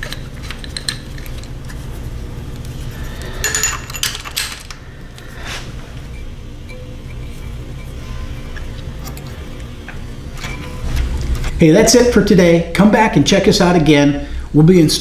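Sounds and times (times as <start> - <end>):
steady low hum: 0.0 - 15.0
wrench clinking on metal: 3.4 - 4.8.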